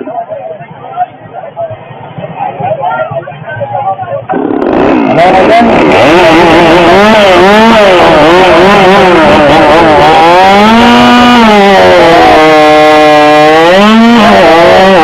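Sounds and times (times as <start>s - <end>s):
chainsaw revving: 4.3s - 15.0s.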